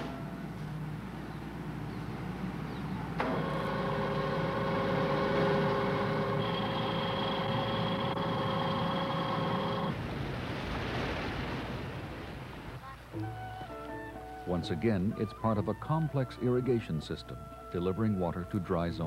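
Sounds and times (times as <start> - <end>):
rushing water: 2.6 - 14.5
electric motor whining: 3.2 - 10.0.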